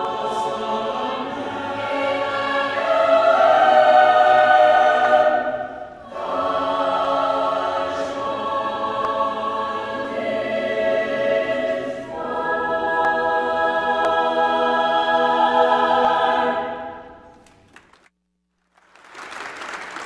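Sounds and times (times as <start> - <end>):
mixed choir singing: 0.0 - 17.2
applause: 17.3 - 20.0.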